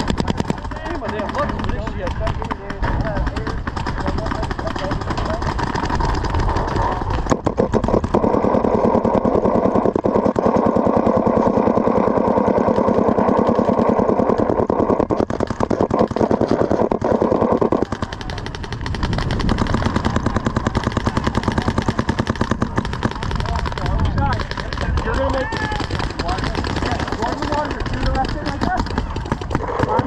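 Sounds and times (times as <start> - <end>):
paintball markers popping: 0.0 - 30.0.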